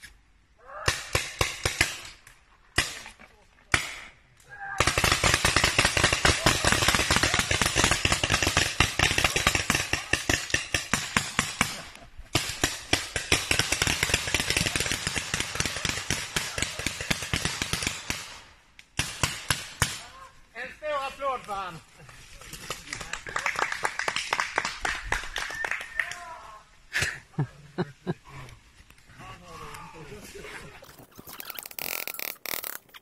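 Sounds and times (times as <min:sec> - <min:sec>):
paintball markers firing: 0:04.8 - 0:18.4.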